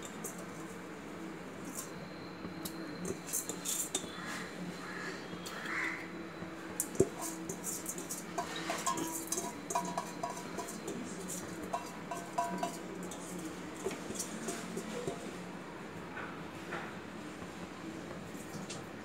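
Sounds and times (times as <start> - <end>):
low steady hum: 5.2 - 16.0.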